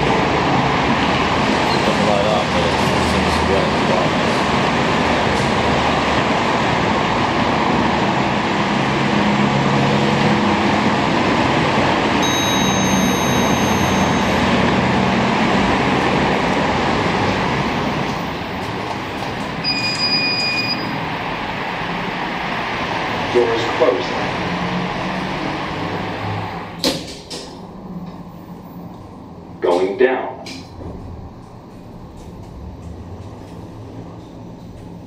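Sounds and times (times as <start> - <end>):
elevator car rushing in shaft: 0.0 - 29.8
short electronic beep: 12.2 - 14.4, 19.6 - 21.0
electronic arrival chime: 12.2 - 14.6, 19.6 - 21.0.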